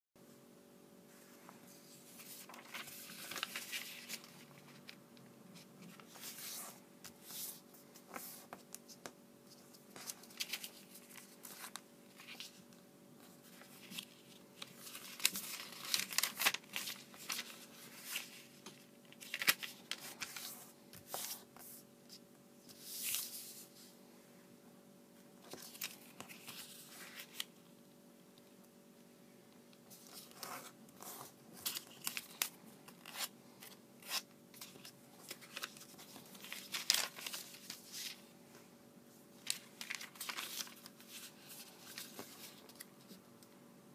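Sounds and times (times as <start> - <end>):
paper rustling and crinkling: 1.5 - 5.0, 5.6 - 23.7, 25.4 - 27.5, 29.8 - 38.3, 39.4 - 43.2
paper crackles: 2.1 - 5.0, 13.4 - 21.7, 29.9 - 38.2, 39.4 - 43.2.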